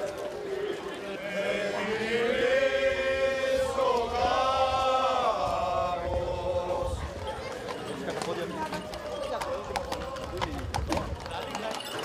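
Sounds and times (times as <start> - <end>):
men singing together: 1.2 - 7.0.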